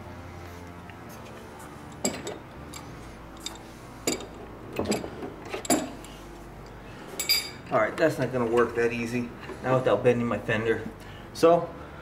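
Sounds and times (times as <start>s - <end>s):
metallic clinks and knocks: 1.9s - 6.2s, 7.2s - 7.8s.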